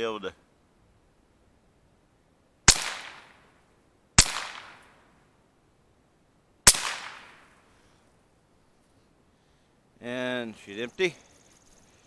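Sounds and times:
rifle shots: 0:02.7 - 0:03.4, 0:04.2 - 0:05.0, 0:06.6 - 0:07.5.

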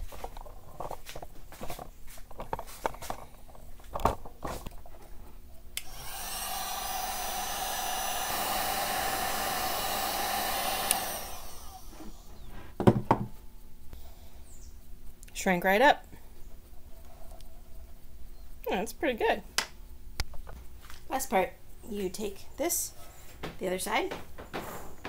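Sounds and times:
heat gun blowing with low hum: 0:05.8 - 0:13.4
knock: 0:12.8 - 0:13.4.

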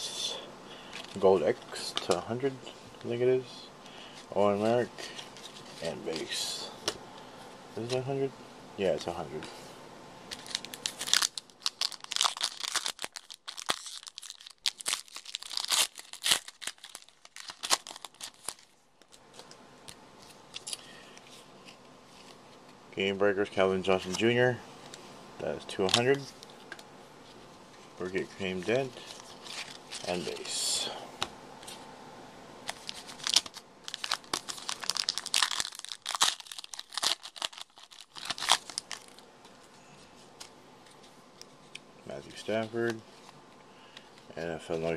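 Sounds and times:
wrapper tearing and crumpling: 0:10.3 - 0:19.2, 0:32.6 - 0:39.2.

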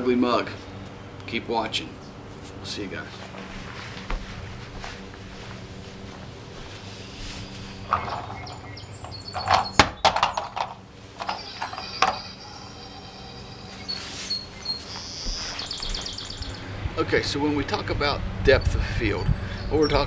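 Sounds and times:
footsteps: 0:02.3 - 0:09.3, 0:13.7 - 0:16.4
thin high ringing tones: 0:06.6 - 0:16.7.

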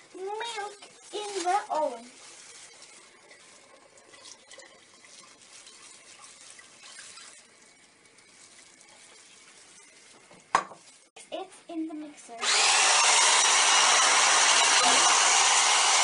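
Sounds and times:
milk pouring into saucepan: 0:02.4 - 0:10.1.

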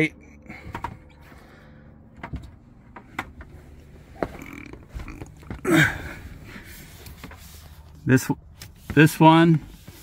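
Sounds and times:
low grunt: 0:04.1 - 0:06.4.

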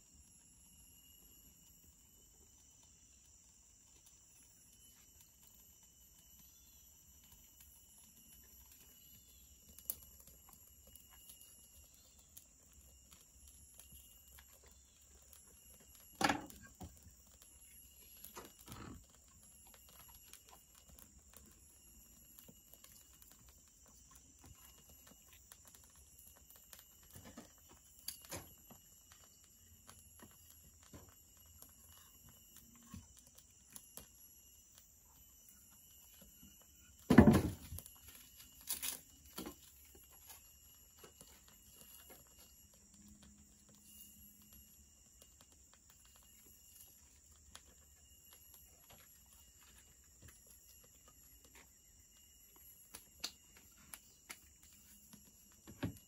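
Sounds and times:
forest insects droning: 0:00.0 - 0:56.0
firewood knocking against metal: 0:16.2 - 0:16.9, 0:37.1 - 0:37.7.

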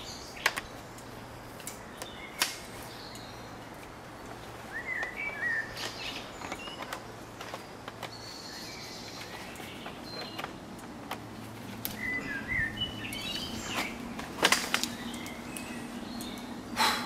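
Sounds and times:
birds chirping and whistling: 0:04.6 - 0:10.6, 0:11.9 - 0:17.0.

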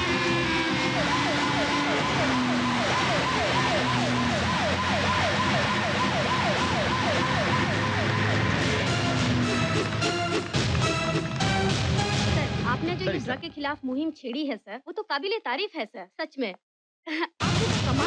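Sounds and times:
police siren wailing: 0:00.0 - 0:11.1.

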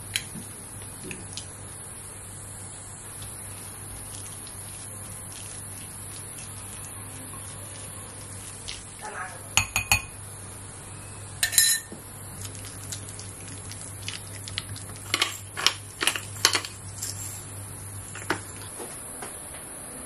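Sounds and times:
ringing clink of glass: 0:11.4 - 0:12.0.

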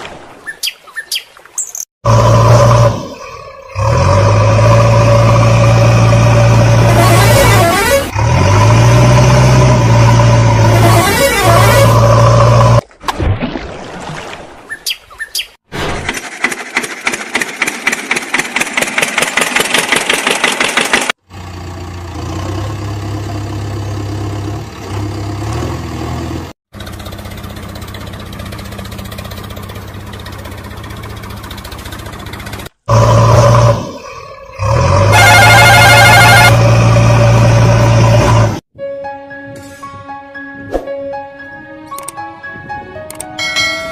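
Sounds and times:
engine sound effect: 0:02.0 - 0:12.8, 0:16.0 - 0:38.6.

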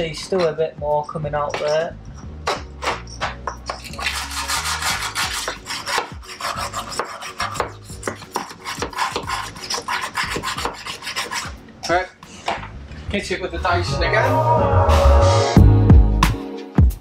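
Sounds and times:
wire brush scrubbing rusty steel: 0:02.8 - 0:11.6.

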